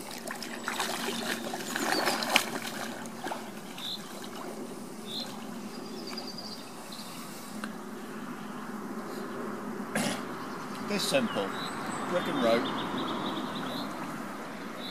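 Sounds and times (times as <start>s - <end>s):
water splashing from wading: 0.0s - 6.5s.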